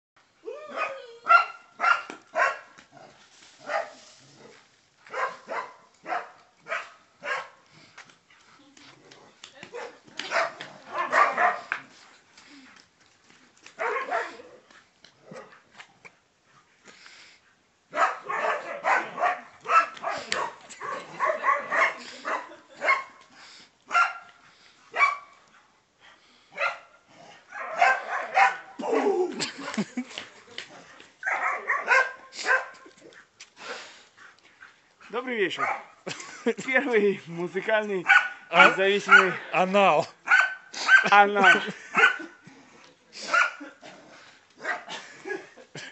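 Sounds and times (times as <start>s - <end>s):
dog barking: 0.7s - 2.7s, 3.6s - 4.0s, 5.1s - 7.6s, 9.7s - 11.7s, 13.8s - 14.5s, 17.9s - 23.2s, 23.9s - 24.3s, 24.9s - 25.4s, 26.6s - 28.8s, 31.2s - 32.8s, 35.6s - 36.0s, 38.0s - 39.4s, 40.2s - 42.3s, 43.3s - 43.6s, 44.6s - 45.0s.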